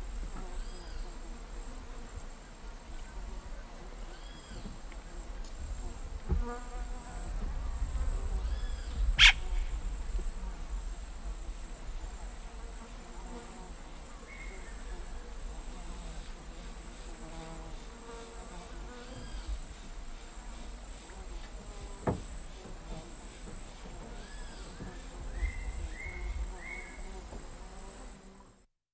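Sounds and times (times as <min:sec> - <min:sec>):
high-pitched insect drone: 0:07.1 - 0:28.3
birds calling: 0:08.5 - 0:09.7
cacique calling: 0:08.5 - 0:09.8.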